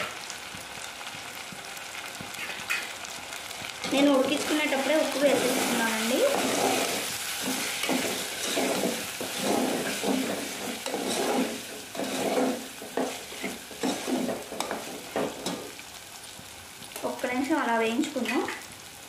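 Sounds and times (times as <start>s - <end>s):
curry frying and sizzling: 0.0s - 19.0s
metal spatula scraping a pot: 5.1s - 15.7s.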